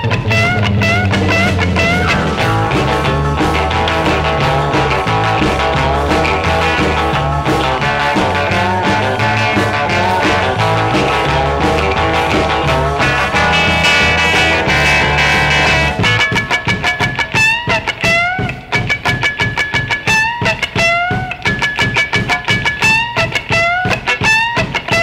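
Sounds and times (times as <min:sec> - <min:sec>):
bass line: 0:00.0 - 0:17.5
drum beat: 0:00.0 - 0:25.0
electric guitar with bent notes: 0:00.0 - 0:25.0.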